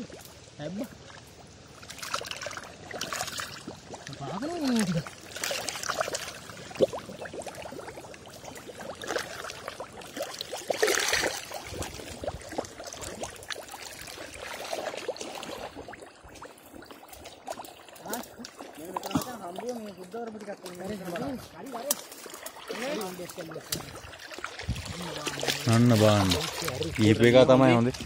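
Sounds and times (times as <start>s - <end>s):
muddy water splashing: 0.0s - 28.0s.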